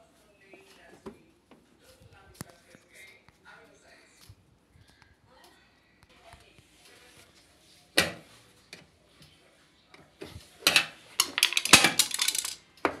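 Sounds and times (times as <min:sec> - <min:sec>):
hand tools knocking and clattering: 0:10.7 - 0:12.6.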